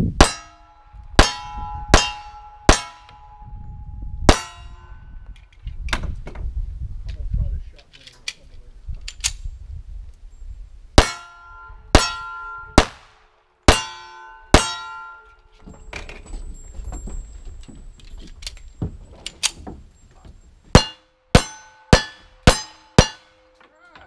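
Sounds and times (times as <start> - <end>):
steel target ringing: 0.2 - 3.6, 4.2 - 5.2, 11.0 - 13.0, 13.7 - 15.4, 20.7 - 23.6
metallic clicks of guns handled: 7.8 - 9.4, 18.0 - 19.6
gunshots: 11.9 - 14.9.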